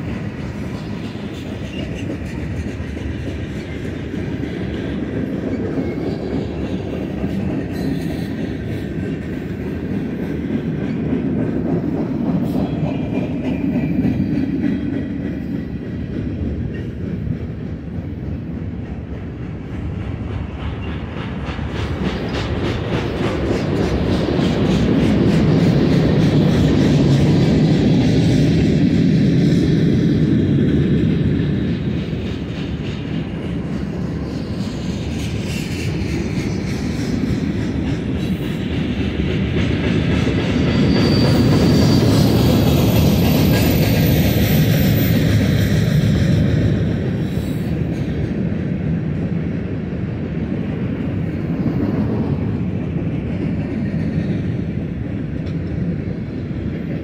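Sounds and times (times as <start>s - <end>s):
clickety-clack over rail joints: 0.0s - 57.0s
train wheels rumbling on rails: 0.0s - 57.0s.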